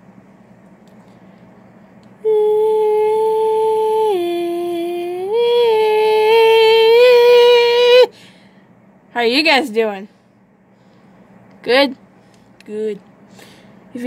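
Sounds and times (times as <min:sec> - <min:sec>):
woman humming: 0:02.2 - 0:08.1.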